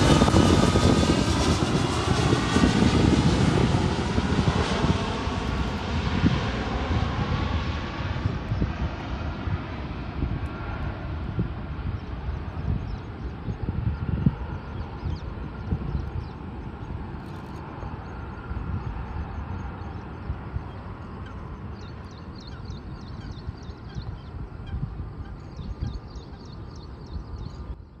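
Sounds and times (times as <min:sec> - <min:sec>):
distant jet airliner landing: 0:00.0 - 0:28.0
wind on microphone: 0:00.0 - 0:28.0
small birds chirping: 0:11.8 - 0:28.0.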